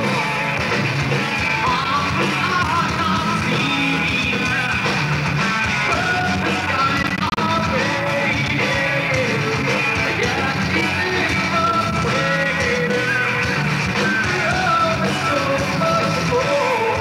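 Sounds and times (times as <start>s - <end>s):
live rock band playing: 0.0s - 17.0s
person singing: 1.5s - 5.1s, 5.8s - 17.0s.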